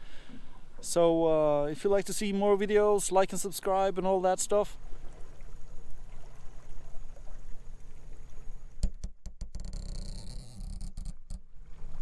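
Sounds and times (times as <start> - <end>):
water noise: 0.0 - 12.0
wind: 0.0 - 12.0
motorboat engine rumble: 4.8 - 12.0.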